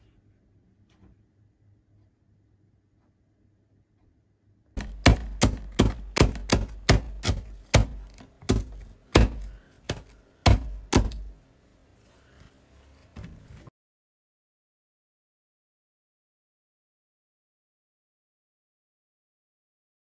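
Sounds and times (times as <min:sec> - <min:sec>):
knife tapping on plastic cutting board: 0:04.8 - 0:11.3.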